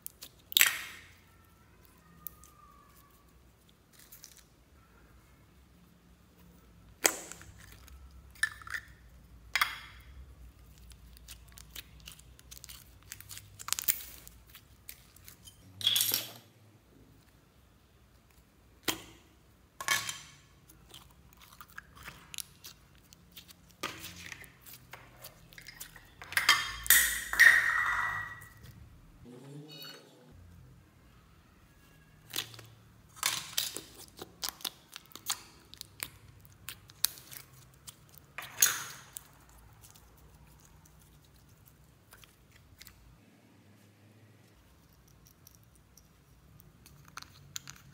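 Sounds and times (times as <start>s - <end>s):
slime clicking and crackling: 0.0s - 4.5s, 6.9s - 15.4s, 20.6s - 26.2s, 32.2s - 43.1s.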